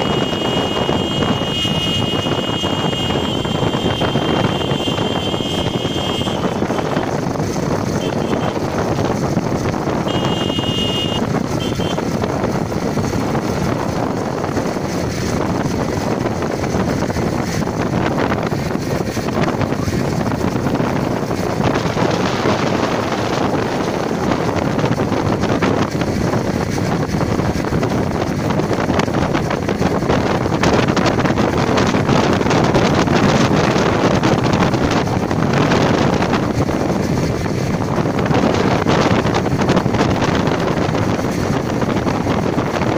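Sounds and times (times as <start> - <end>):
engine noise: 0.0 - 42.9
road noise: 0.0 - 42.9
wind rushing over microphone: 0.0 - 42.9.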